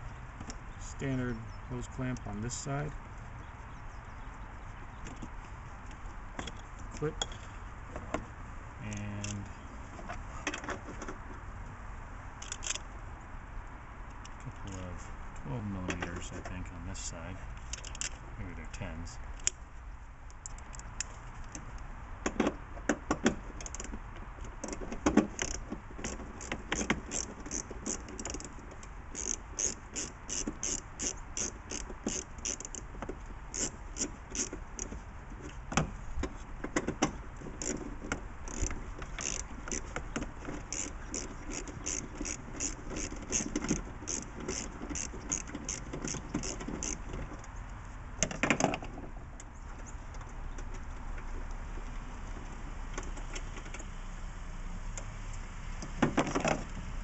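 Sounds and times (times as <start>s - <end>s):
ratchet wrench clicking: 12.4s - 12.8s, 25.4s - 28.5s, 29.1s - 32.9s, 33.5s - 34.9s, 38.4s - 47.0s.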